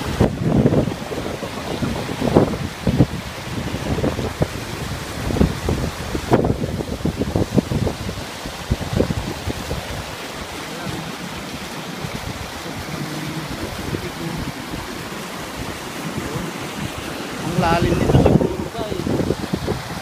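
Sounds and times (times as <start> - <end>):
stream water rushing over rocks: 0.0 - 20.0
wind rumbling on microphone: 0.0 - 20.0.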